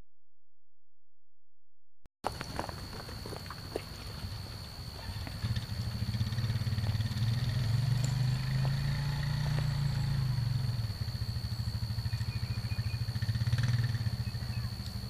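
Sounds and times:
hoof thuds on dirt: 2.2 - 5.7, 7.9 - 9.8
engine humming: 2.2 - 15.0.

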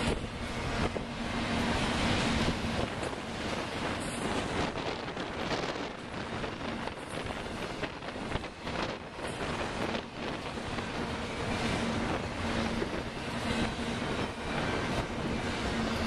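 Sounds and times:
train wheels over rail joints: 0.0 - 16.0
wind buffeting microphone: 0.0 - 16.0.

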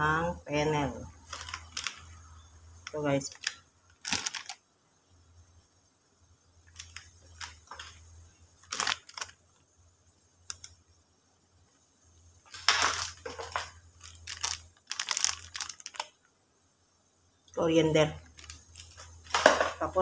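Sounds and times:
low steady hum: 0.0 - 20.0
plastic sachets crinkling: 1.2 - 4.6, 6.7 - 9.6, 10.4 - 10.8, 12.5 - 16.2, 18.2 - 19.7.

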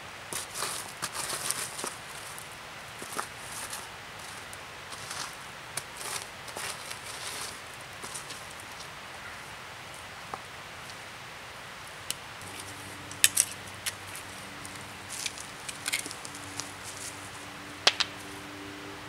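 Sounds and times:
hand tool scraping soil: 0.3 - 2.4, 3.0 - 8.5.

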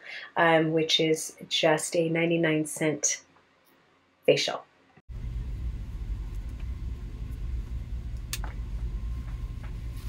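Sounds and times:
low background rumble: 5.1 - 10.0.

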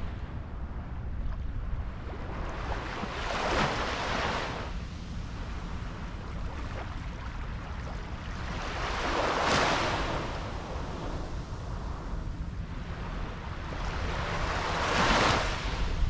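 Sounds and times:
steady low rumble: 0.0 - 16.0
waves washing onto sand: 6.5 - 12.0, 13.3 - 16.0.

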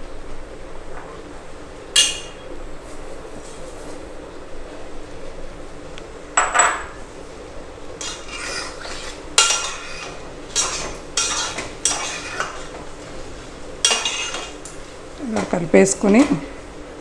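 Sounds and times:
metal spatula scraping a pot: 8.0 - 12.8, 13.8 - 14.6.

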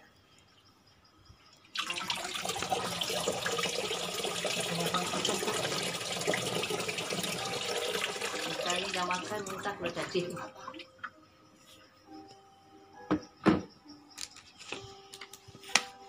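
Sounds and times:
water pouring into tank: 1.7 - 10.8.

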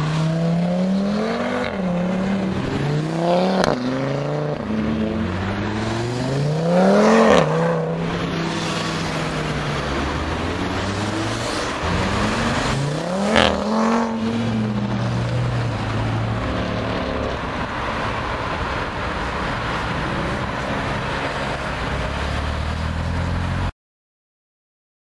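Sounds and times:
car engine passing by: 0.0 - 23.7.

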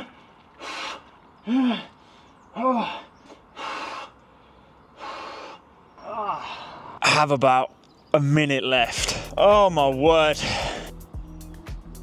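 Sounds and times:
man gasping and groaning: 0.0 - 4.2, 5.0 - 7.2, 8.9 - 9.5, 10.2 - 11.1
man breathing hard: 0.0 - 7.0, 10.4 - 11.1.

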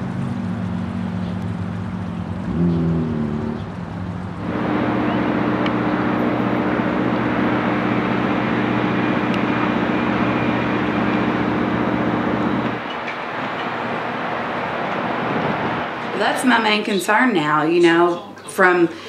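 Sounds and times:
mechanical drone with rushing noise: 1.8 - 16.6.

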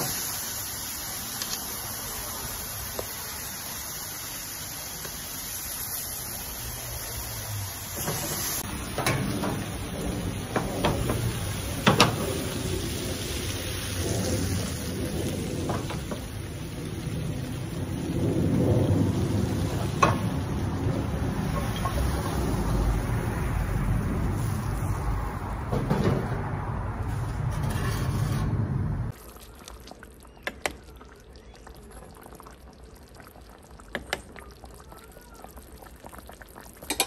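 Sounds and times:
meat sizzling in a skillet: 0.0 - 22.9.

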